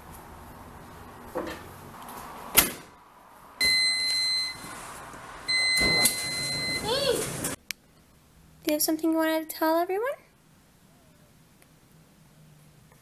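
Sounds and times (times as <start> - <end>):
long electronic beeps: 3.6 - 4.7, 5.5 - 7.0.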